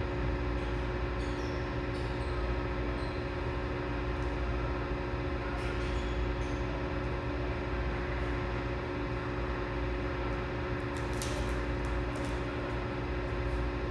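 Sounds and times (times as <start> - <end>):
low machine hum: 0.0 - 13.9.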